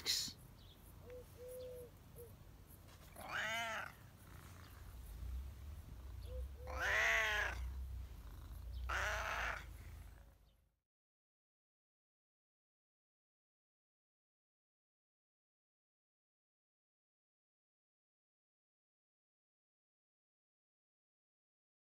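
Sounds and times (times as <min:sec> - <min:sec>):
cat meowing: 0:03.1 - 0:04.1, 0:06.3 - 0:07.9, 0:08.8 - 0:09.8.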